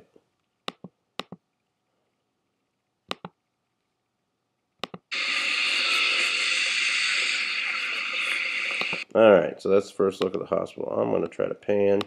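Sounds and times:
mouse clicks: 0.7s - 1.4s, 3.1s - 3.4s, 4.8s - 5.1s, 8.7s - 9.0s.

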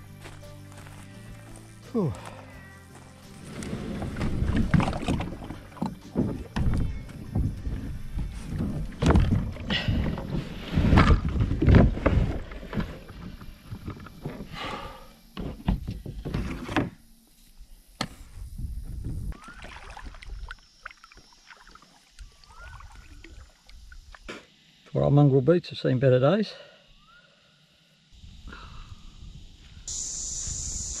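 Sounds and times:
knocks and thumps on kayak hull: 4.1s - 14.5s
low rumble on microphone: 18.3s - 19.4s.

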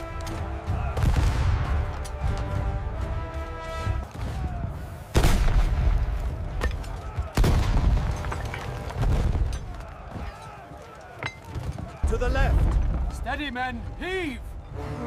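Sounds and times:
cannon shots booming: 5.1s - 9.8s.

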